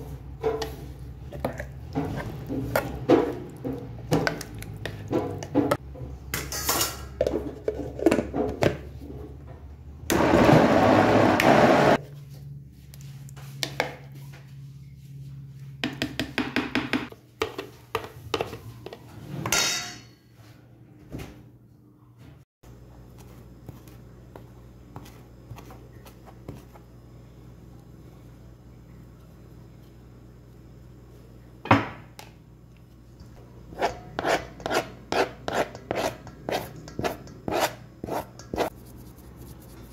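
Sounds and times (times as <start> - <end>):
blender grinding: 10.1 - 12.0.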